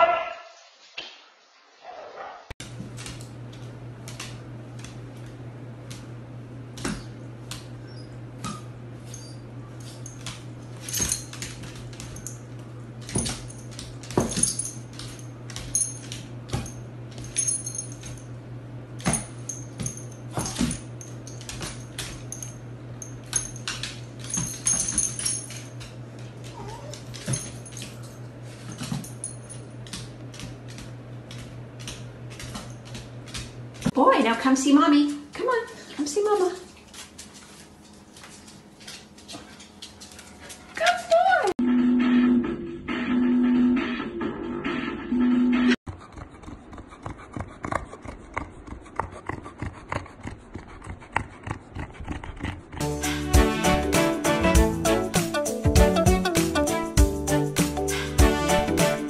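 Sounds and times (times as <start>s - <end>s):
paws and claws clicking on floor: 2.6s - 6.1s, 6.8s - 18.3s, 19.0s - 34.0s, 35.2s - 41.3s
steady low hum: 2.6s - 53.1s
collar tags jingling: 17.1s - 18.3s, 19.2s - 25.8s.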